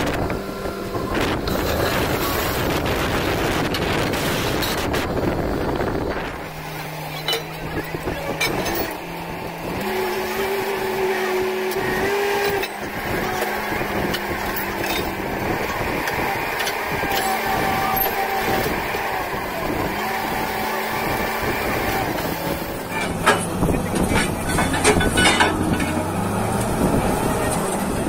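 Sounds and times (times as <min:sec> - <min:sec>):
drilling rig engine humming: 0:00.0 - 0:28.0.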